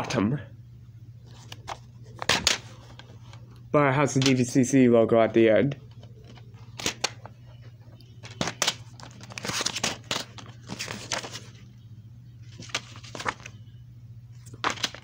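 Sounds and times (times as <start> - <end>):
steady low hum: 0.0 - 15.0
paper crinkling: 8.2 - 11.7, 12.4 - 13.6, 14.4 - 15.0.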